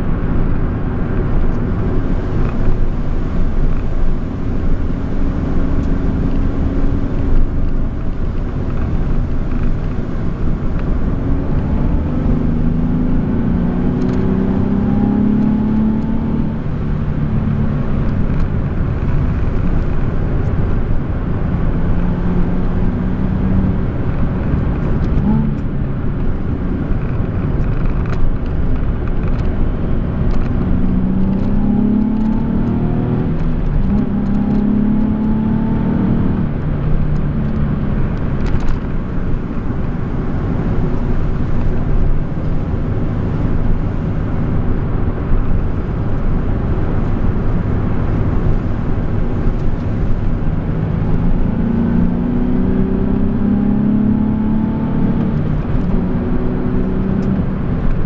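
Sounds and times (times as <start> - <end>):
car engine revving from inside cabin: 10.3 - 18.3, 20.8 - 25.8, 29.9 - 42.2, 43.0 - 58.0.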